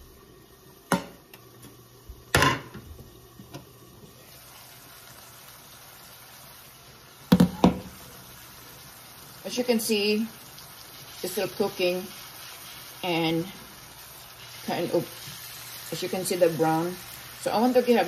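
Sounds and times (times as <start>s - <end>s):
fish sizzling in a frying pan: 0.0s - 18.0s
kitchenware knocking: 7.3s - 7.9s.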